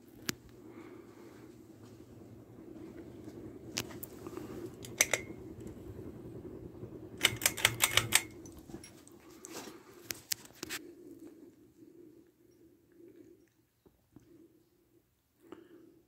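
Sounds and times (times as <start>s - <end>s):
ceiling fan motor hum: 0.0s - 13.4s
sharp clicks: 4.8s - 5.8s, 7.2s - 8.6s.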